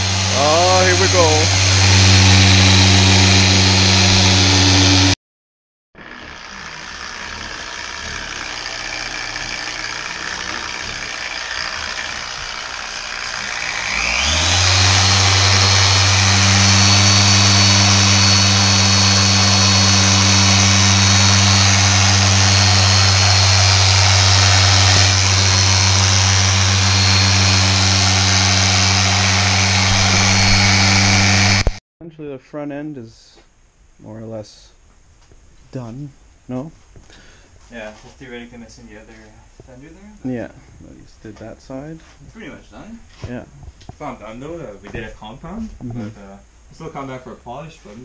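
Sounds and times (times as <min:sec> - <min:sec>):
orbital polisher whining: 0:00.0 - 0:05.2, 0:06.0 - 0:31.8.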